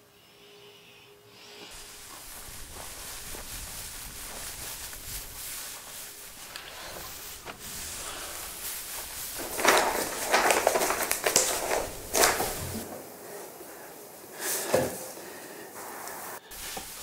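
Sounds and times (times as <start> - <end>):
paper sheets rustling: 1.7 - 12.9.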